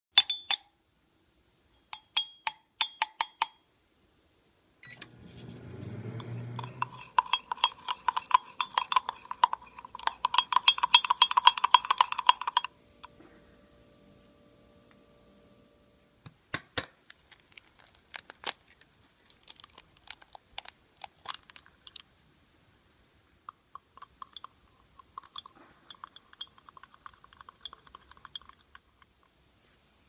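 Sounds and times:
metal spoon clinking in ceramic mug: 0.2s - 0.7s, 1.8s - 3.6s, 6.2s - 12.7s, 24.0s - 28.8s.

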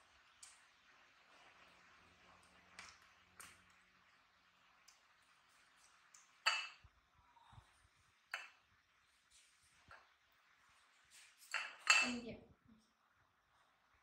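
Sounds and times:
knife clinking on ceramic plate: 11.5s - 12.2s.

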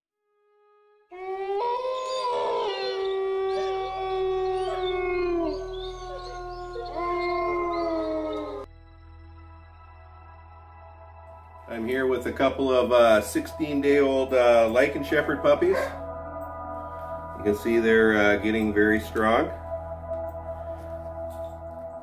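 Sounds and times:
steady music tone: 0.6s - 22.0s
dogs howling together: 1.2s - 8.7s.

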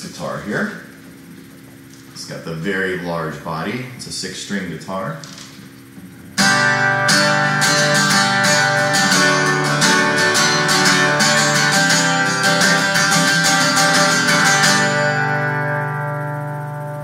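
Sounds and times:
acoustic guitar strumming: 6.2s - 17.0s.

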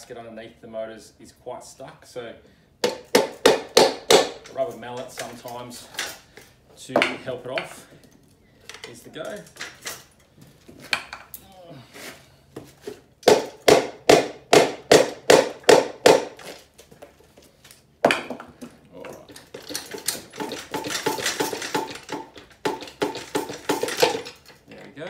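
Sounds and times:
rattling and scraping metal: 18.5s - 25.0s.

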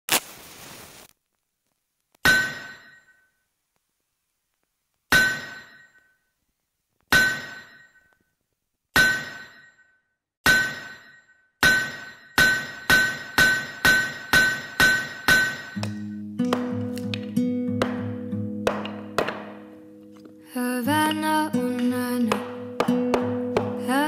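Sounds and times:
short hiss: 0.1s - 1.1s
hammer clanging on anvil: 2.2s - 3.2s, 5.1s - 6.0s, 7.1s - 8.1s, 9.0s - 9.8s, 10.5s - 17.2s, 17.8s - 19.7s, 21.7s - 23.9s.

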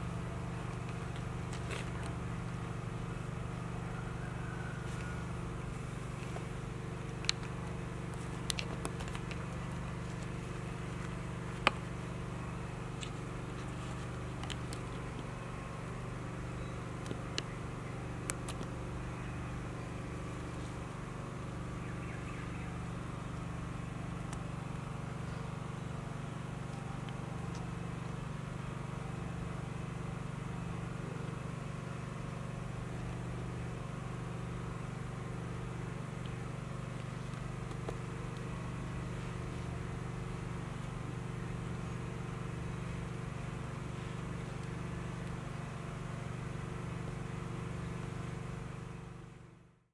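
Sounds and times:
low mechanical hum: 0.0s - 49.9s.

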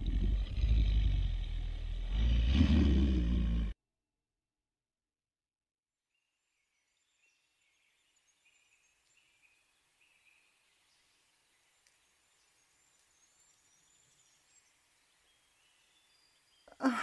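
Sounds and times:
faint outdoor ambience: 6.9s - 17.0s.

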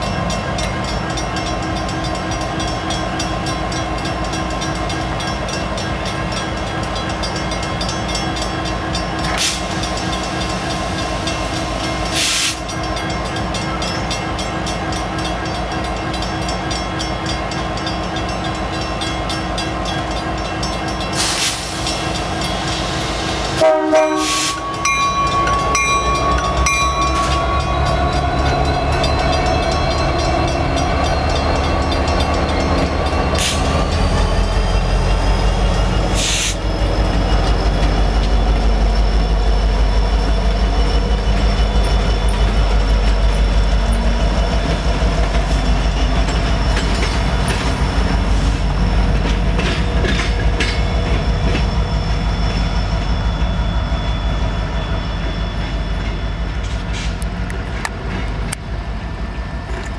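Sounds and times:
locomotive horn: 23.5s - 27.8s
air hisses: 36.2s - 36.7s.

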